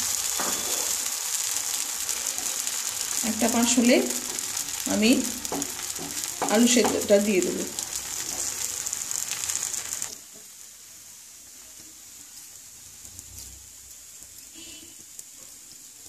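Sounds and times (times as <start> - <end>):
batter sizzling in hot oil: 0.0 - 16.0.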